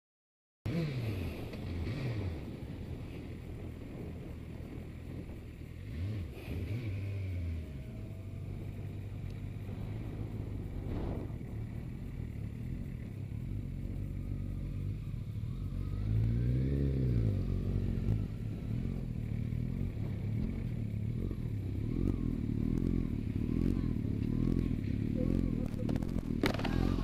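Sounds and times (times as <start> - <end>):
motorcycle engine running: 0.7 - 27.0.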